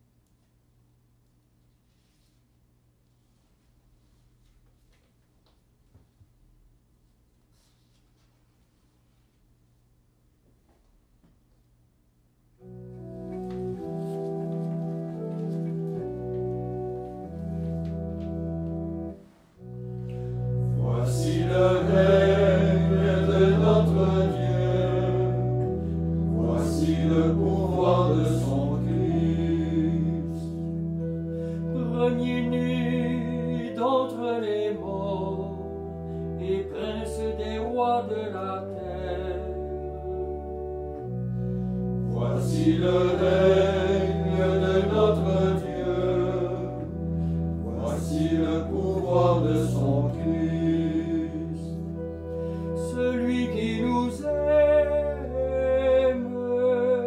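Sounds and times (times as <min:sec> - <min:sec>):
sustained low chords: 0:12.6 - 0:57.0
men singing a chant: 0:47.7 - 0:51.6.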